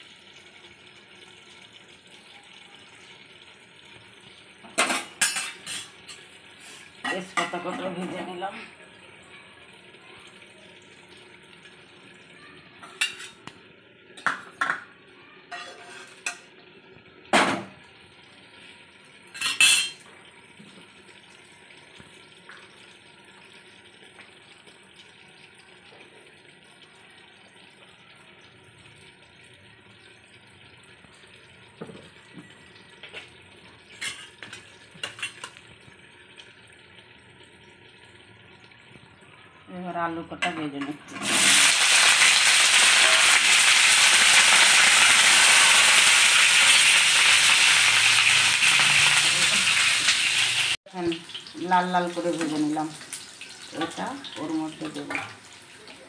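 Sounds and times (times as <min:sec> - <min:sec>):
metal pans clattering: 0:04.7 - 0:06.2, 0:07.0 - 0:08.3, 0:12.8 - 0:13.4, 0:14.2 - 0:14.9, 0:15.5 - 0:16.5, 0:19.4 - 0:20.0, 0:34.0 - 0:35.6.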